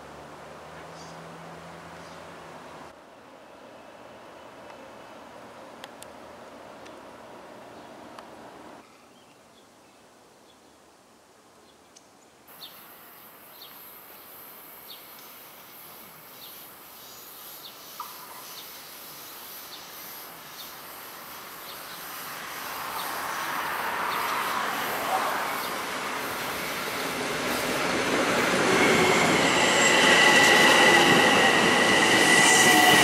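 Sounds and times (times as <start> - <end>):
high steady hiss: 0.0 - 28.5
electric train approaching: 12.6 - 33.0.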